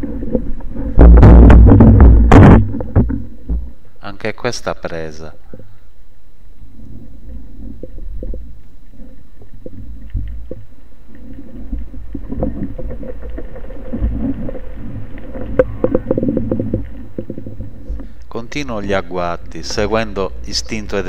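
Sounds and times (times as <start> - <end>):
clicks and knocks underwater: 0.0 - 3.8, 6.8 - 18.2
underwater low rumble: 0.0 - 3.9, 5.4 - 18.2.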